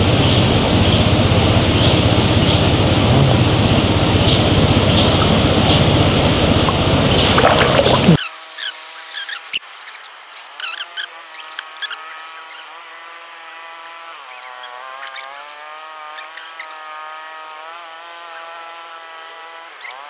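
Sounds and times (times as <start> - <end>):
water sloshing and splashing: 3.0 - 8.2.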